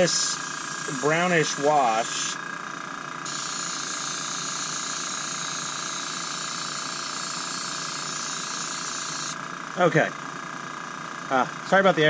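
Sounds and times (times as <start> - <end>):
airbrush hissing: 0.0 - 2.4, 3.2 - 9.5
air compressor humming: 0.0 - 12.0.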